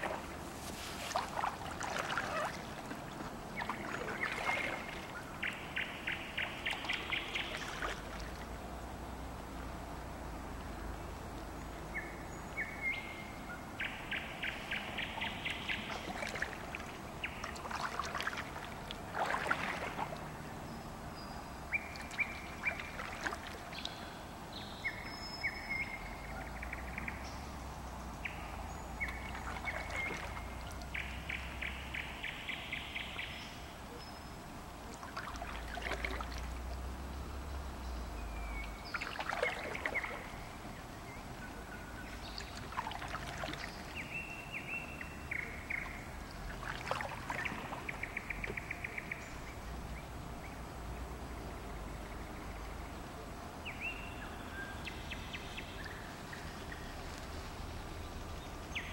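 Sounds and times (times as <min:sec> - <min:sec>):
paddle strokes splashing water: 0:00.0 - 0:09.0, 0:14.4 - 0:20.5, 0:21.7 - 0:24.1, 0:28.9 - 0:32.4, 0:34.8 - 0:37.5, 0:38.6 - 0:40.8, 0:41.6 - 0:49.0
songbird singing: 0:00.0 - 0:58.9.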